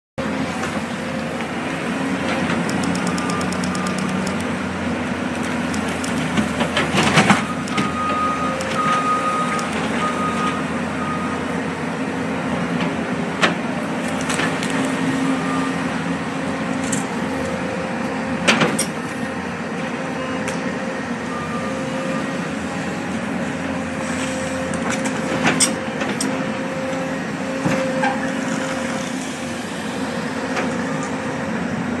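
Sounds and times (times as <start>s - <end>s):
diesel engines running: 0.2s - 32.0s
backup alarm beeping: 2.7s - 4.5s, 7.4s - 11.4s.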